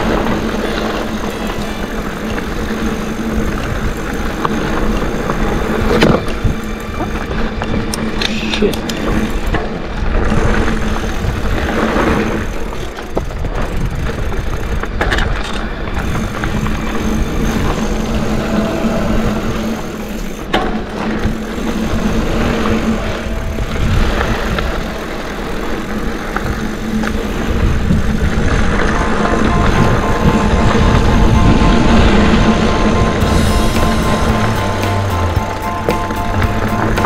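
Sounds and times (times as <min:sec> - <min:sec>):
bike rattling: 0:00.0 - 0:37.0
bike tyres over dirt and rocks: 0:00.0 - 0:37.0
low rumble: 0:15.8 - 0:37.0.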